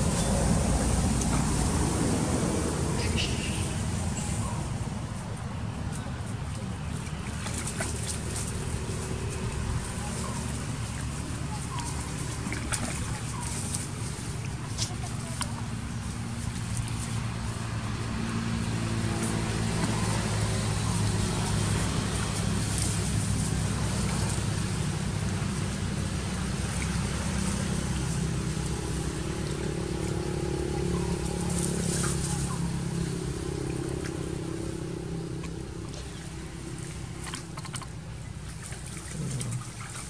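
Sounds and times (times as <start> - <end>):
vehicle engine running: 0.0 - 40.0
water splashing in metal basin: 35.4 - 40.0.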